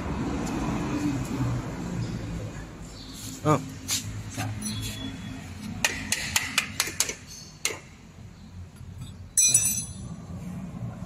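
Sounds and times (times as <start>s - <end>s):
metallic clatter with ringing: 9.4s - 10.1s.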